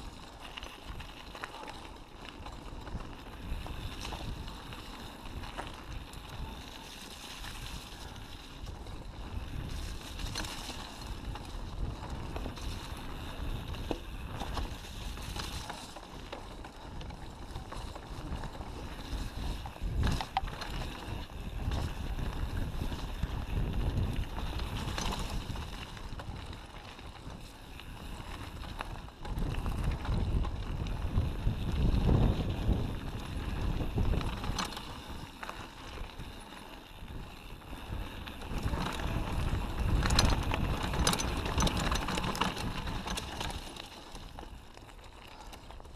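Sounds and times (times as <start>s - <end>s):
wind noise on microphone: 0.0s - 44.5s
bike tyre rumble on dirt: 0.0s - 45.9s
bike clattering over roots: 9.3s - 45.9s.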